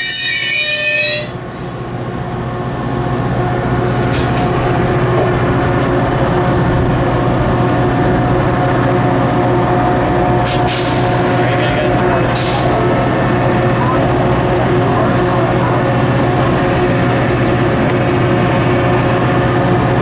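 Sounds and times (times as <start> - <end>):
train wheel and brake squeal: 0.0 - 2.3
diesel engine humming: 0.0 - 20.0
short air hisses: 1.5 - 2.3, 10.4 - 11.3.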